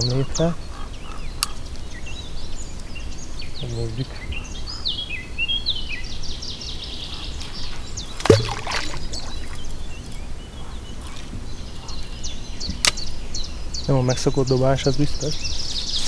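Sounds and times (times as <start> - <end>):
songbirds singing: 0.0 - 16.0
plop in water: 8.2 - 9.6.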